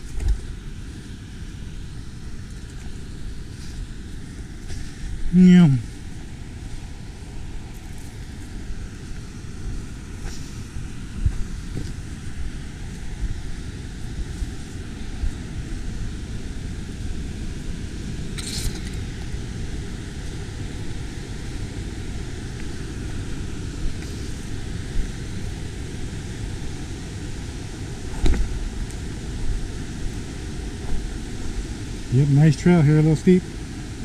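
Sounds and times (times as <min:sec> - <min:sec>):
waterfall and rapids roaring: 0:00.0 - 0:34.0.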